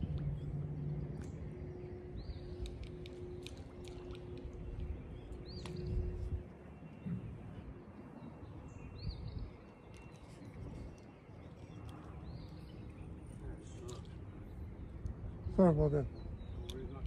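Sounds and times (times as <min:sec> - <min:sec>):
faint steady hum: 0:00.0 - 0:17.0
low outdoor rumble: 0:00.0 - 0:17.0.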